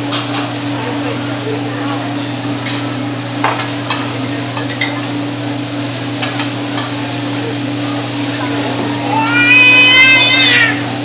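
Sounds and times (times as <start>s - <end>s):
food sizzling on a griddle: 2.6s - 10.3s.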